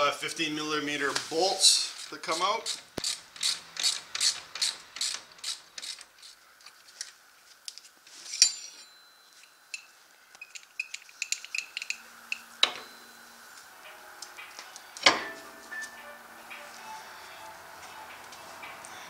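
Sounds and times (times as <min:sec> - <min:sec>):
hand ratchet clicking: 0:02.0 - 0:06.3, 0:09.8 - 0:12.5.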